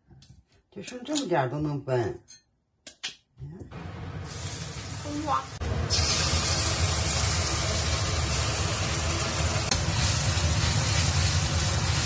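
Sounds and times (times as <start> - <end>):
food sizzling in hot oil: 3.8 - 12.0.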